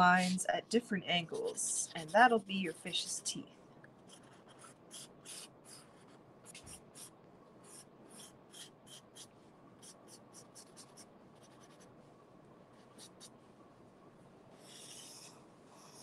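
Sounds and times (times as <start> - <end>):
marker scratching on cardboard: 4.1 - 11.9, 12.8 - 13.3, 14.6 - 16.0.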